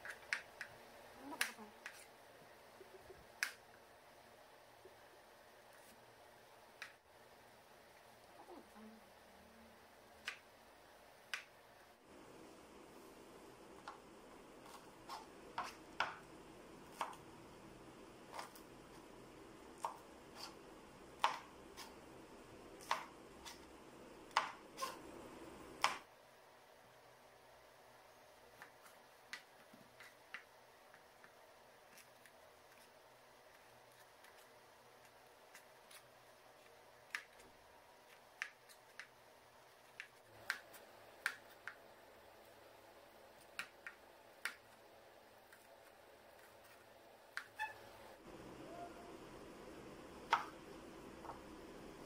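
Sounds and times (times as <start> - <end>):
knife chopping on plastic board: 21.2 - 21.9, 22.8 - 23.6.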